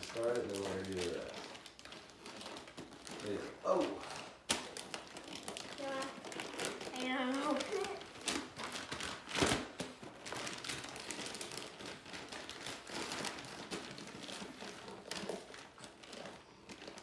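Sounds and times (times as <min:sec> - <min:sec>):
wrapping paper crinkling: 0:00.0 - 0:17.0.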